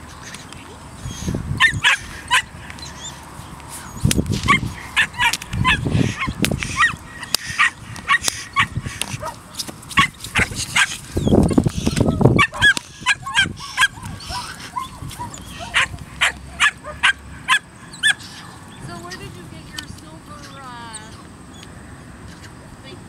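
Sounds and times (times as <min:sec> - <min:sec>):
puppy yipping and barking: 0:01.1 - 0:03.2, 0:04.4 - 0:18.5.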